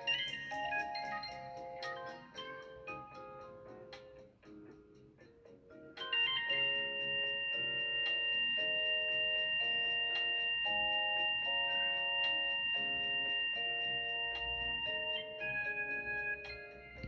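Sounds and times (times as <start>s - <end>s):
phone ringtone: 0.0s - 3.8s, 6.0s - 17.0s.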